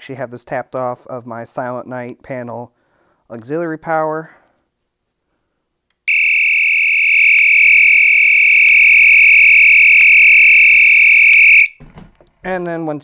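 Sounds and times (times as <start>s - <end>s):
continuous high-pitched alarm tone: 6.1s - 11.8s.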